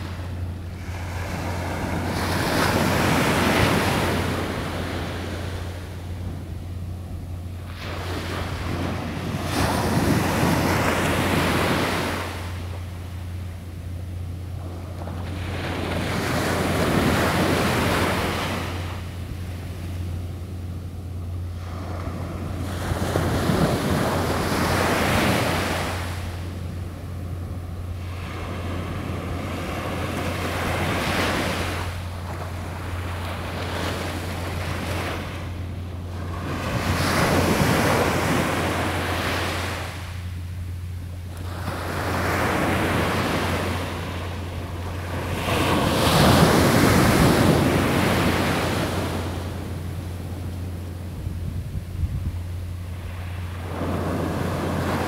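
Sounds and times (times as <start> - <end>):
ocean surf breaking: 0.0 - 6.5, 7.6 - 13.5, 14.5 - 20.2, 21.5 - 40.4, 41.3 - 51.2, 52.8 - 55.0
wind rumble on microphone: 0.0 - 55.0.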